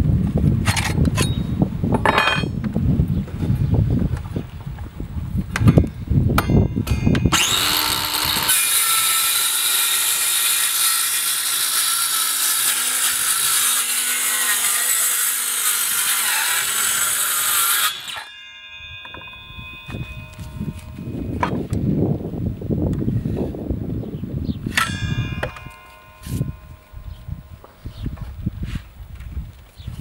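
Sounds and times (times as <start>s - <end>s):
saw blade coasting down: 6.4s - 21.7s, 24.6s - 27.8s
circular saw cutting wood: 6.8s - 21.7s, 24.6s - 28.0s.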